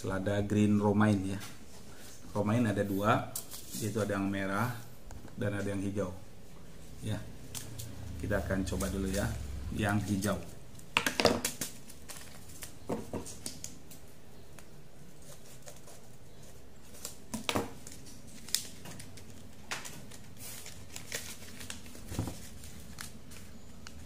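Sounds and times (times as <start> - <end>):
paper packet rustling and tearing: 11.4 - 13.6, 15.1 - 24.0.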